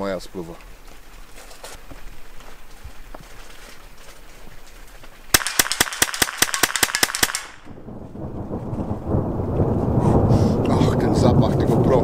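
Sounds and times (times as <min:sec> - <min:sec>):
rapid gunfire burst: 0:05.3 - 0:07.6
thunder rumble: 0:07.5 - 0:12.0.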